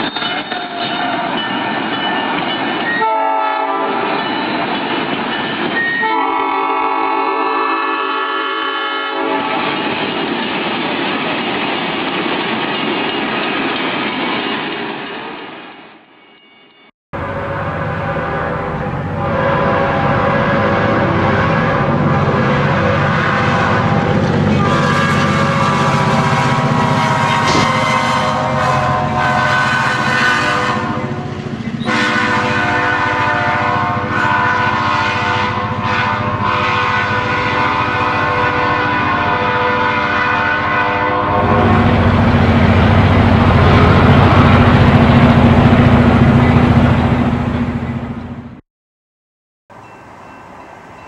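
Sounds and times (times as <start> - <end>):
model locomotive horn blasts: 3.0 - 4.0, 5.9 - 9.6, 17.2 - 42.1.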